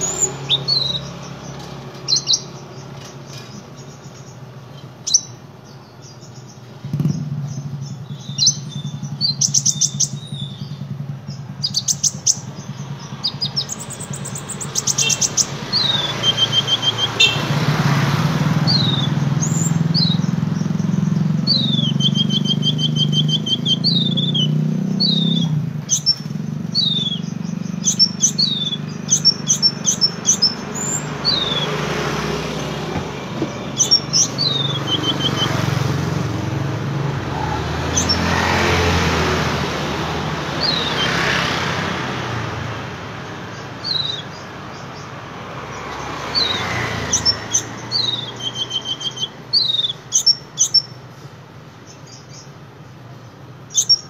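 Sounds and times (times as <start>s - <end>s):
street traffic hum: 0.0s - 54.0s
sunbird chirping and trilling: 0.0s - 54.0s.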